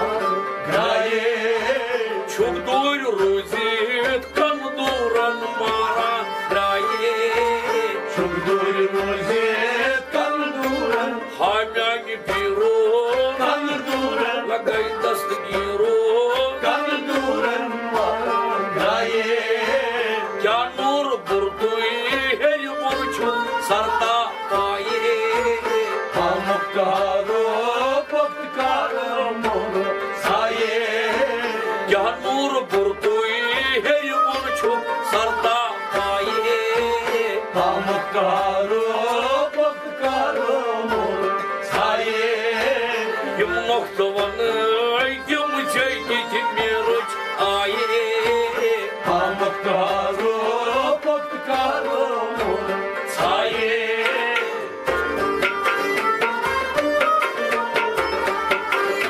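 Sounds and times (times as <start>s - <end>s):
man singing: 0.0s - 56.1s
stringed instrument: 0.0s - 59.0s
goblet drum beating: 53.5s - 59.0s.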